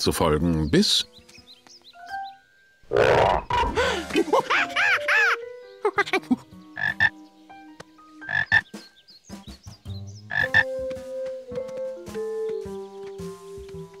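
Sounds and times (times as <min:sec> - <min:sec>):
cartoon frog croaking: 0:02.9 - 0:03.8, 0:06.8 - 0:07.1, 0:08.2 - 0:08.6, 0:10.3 - 0:10.7.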